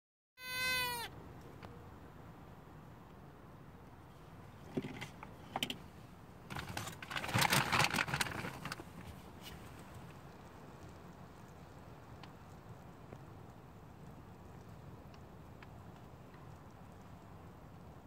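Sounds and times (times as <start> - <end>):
crinkly rustling and crackling: 6.5 - 17.2.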